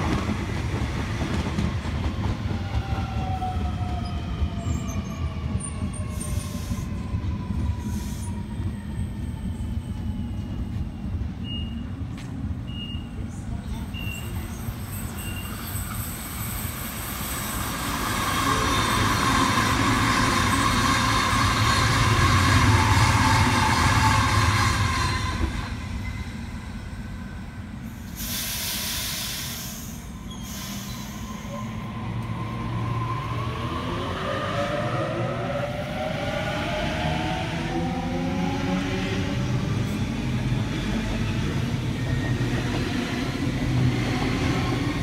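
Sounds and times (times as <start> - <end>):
train wheels rumbling: 13.4 - 26.8
burst of hiss: 28.2 - 31.3.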